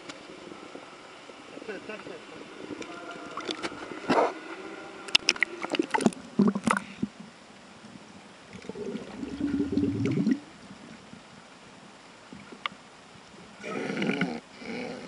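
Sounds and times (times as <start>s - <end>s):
water splashing and gurgling: 5.1s - 7.1s, 8.5s - 11.2s.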